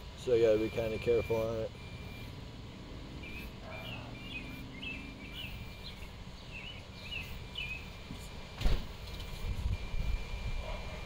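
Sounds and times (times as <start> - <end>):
bird chirping: 0.2 - 2.4, 3.1 - 8.3.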